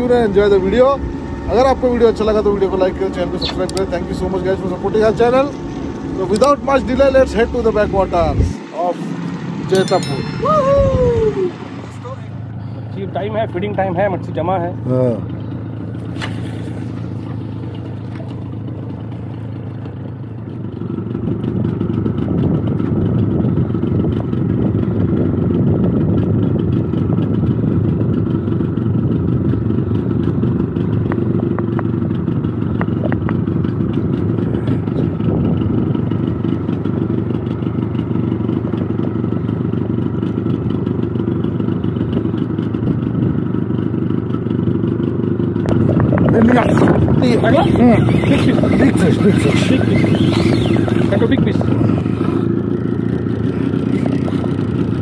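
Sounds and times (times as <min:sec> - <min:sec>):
outboard motor running: 0:00.0 - 0:55.0.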